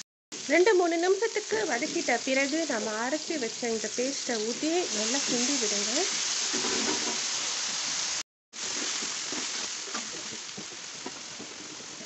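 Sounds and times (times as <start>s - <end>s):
paste sizzling in hot oil: 0.4s - 12.0s
metal spatula scraping wok: 4.9s - 7.4s.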